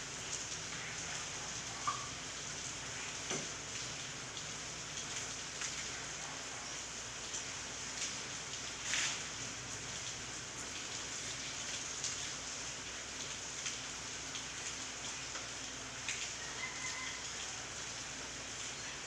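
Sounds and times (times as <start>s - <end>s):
rain on leaves: 0.0s - 19.0s
raindrop ticks: 1.8s - 2.2s.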